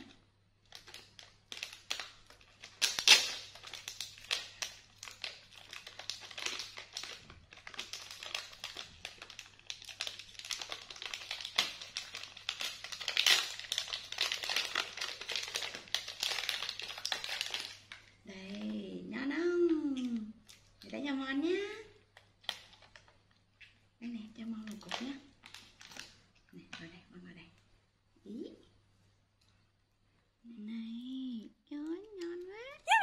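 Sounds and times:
plastic wrapper crinkling: 0:00.0 - 0:18.7, 0:22.0 - 0:23.8, 0:24.7 - 0:26.4.

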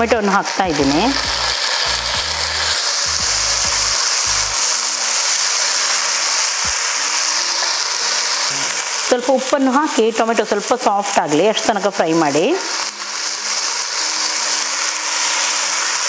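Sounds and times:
food sizzling in hot oil: 0:00.0 - 0:16.0
low rumbles: 0:01.2 - 0:04.6.

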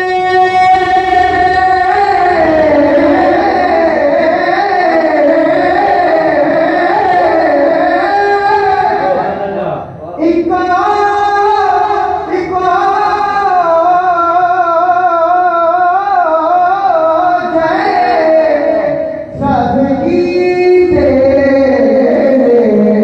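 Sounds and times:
solo voice singing devotional song: 0:00.0 - 0:09.4, 0:10.0 - 0:23.0.

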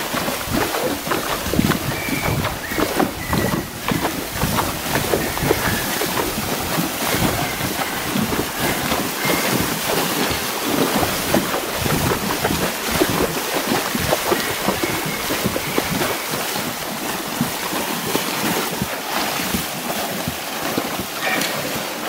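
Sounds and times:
wind buffeting microphone: 0:00.0 - 0:09.9, 0:10.7 - 0:17.7
hooves splashing through water: 0:00.0 - 0:22.0.

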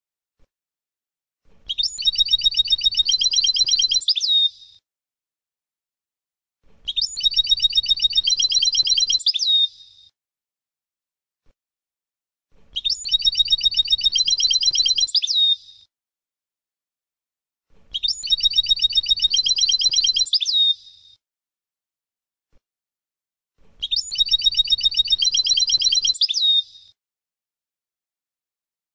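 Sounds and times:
goldfinch trilling song: 0:01.7 - 0:04.6, 0:06.9 - 0:09.8, 0:12.8 - 0:15.8, 0:18.0 - 0:21.0, 0:23.8 - 0:26.9.

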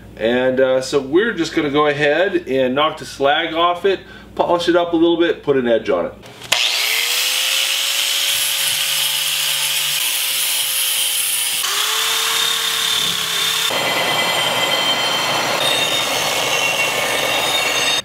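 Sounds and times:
angle grinder whining: 0:06.4 - 0:18.0
belt sander grinding steel: 0:06.5 - 0:18.0.

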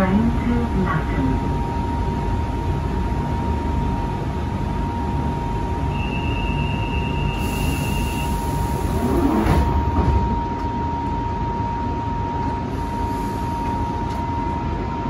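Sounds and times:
low train rumble: 0:00.0 - 0:15.0
electrical whine: 0:05.1 - 0:15.0
air hiss: 0:07.4 - 0:09.4.

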